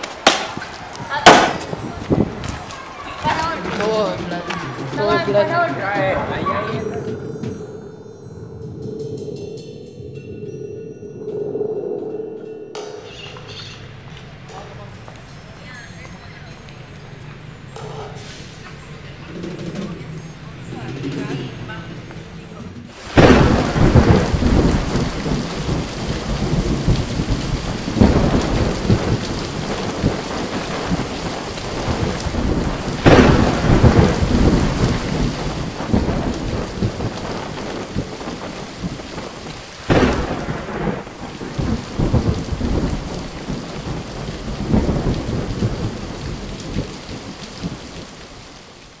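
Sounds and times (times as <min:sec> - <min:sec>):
heavy rain pouring: 0:00.0 - 0:10.4, 0:11.4 - 0:49.0
rolling thunderclaps: 0:00.0 - 0:10.6, 0:22.9 - 0:49.0.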